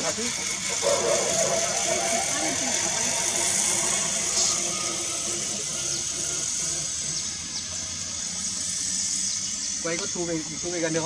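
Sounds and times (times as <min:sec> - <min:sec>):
winch engine humming: 0:00.0 - 0:11.0
steady high hiss: 0:07.4 - 0:11.0.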